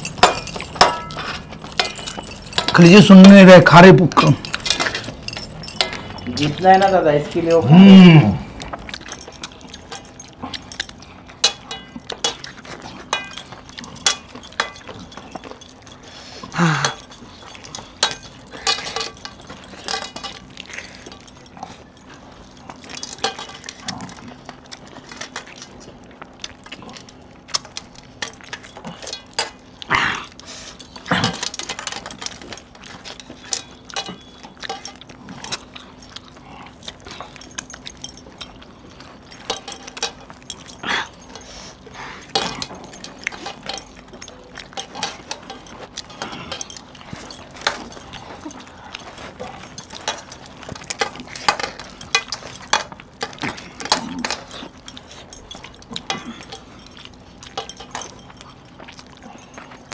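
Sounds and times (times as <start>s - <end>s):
chewing and mouth noises: 0.0s - 59.9s
metal rings clinking on plates: 0.0s - 59.9s
grunt-like vocal sounds: 7.4s - 8.6s, 16.5s - 17.0s, 29.9s - 30.4s.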